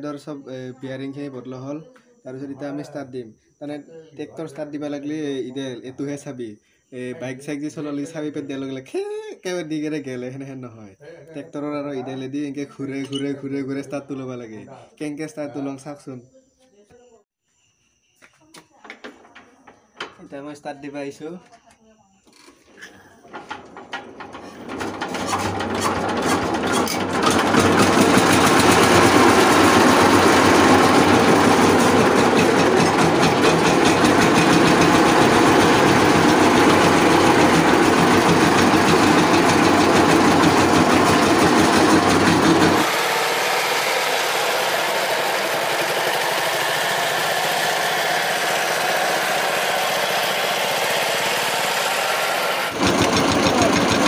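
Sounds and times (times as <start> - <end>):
diesel engine hand-cranked and running: 22.3 - 54.0.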